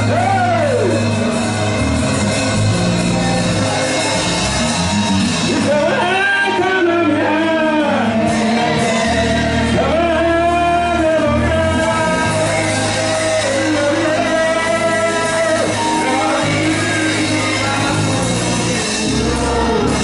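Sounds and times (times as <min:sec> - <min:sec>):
amplified singers: 0:00.0 - 0:20.0
gospel band playing: 0:00.0 - 0:20.0
lead voice singing long phrases: 0:05.5 - 0:20.0.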